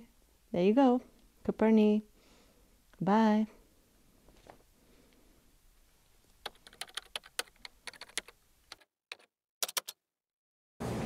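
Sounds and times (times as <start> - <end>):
keyboard key clicks: 6.4 - 10.0.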